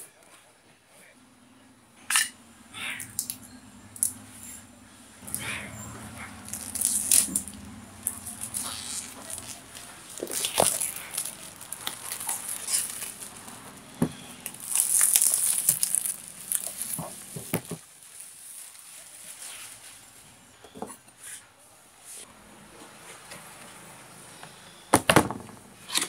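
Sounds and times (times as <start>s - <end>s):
plastic shrink wrap crinkling: 6.0s - 20.1s.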